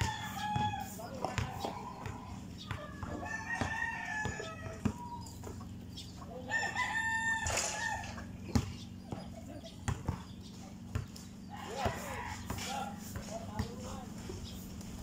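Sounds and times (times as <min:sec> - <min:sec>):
rooster crowing: 0:00.0 - 0:05.2, 0:06.5 - 0:08.3, 0:11.5 - 0:13.0
basketball bouncing on concrete: 0:00.0 - 0:05.9, 0:08.4 - 0:14.1.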